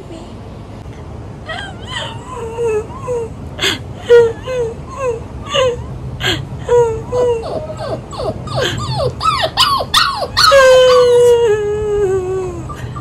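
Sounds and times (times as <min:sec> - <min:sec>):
puppy whining and howling: 0:06.7 - 0:13.0.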